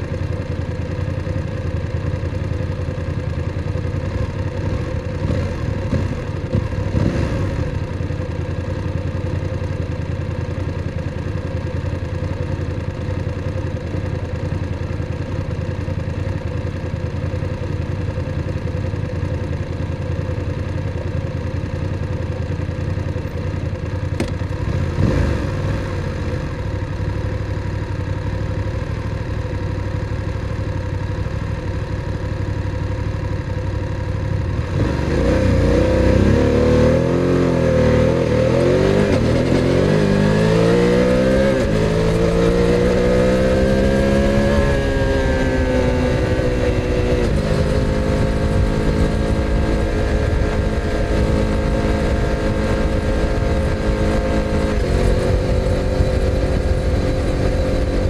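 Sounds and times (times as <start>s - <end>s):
motorcycle engine idling: 0.0s - 34.9s
motorcycle accelerating: 0.0s - 58.0s.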